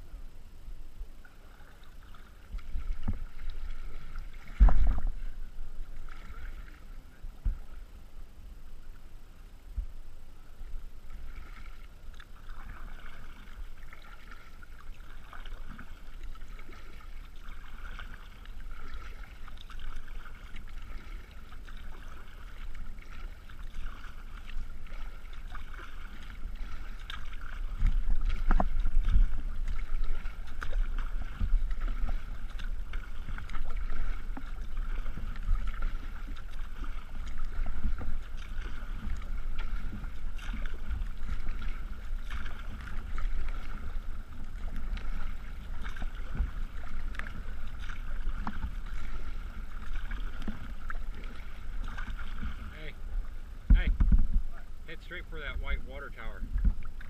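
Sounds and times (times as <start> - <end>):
paddle splashing water: 0.0 - 57.0
water lapping against hull: 0.0 - 57.0
wind rumble on microphone: 2.5 - 8.9, 27.2 - 50.9, 51.7 - 54.9, 56.4 - 57.0.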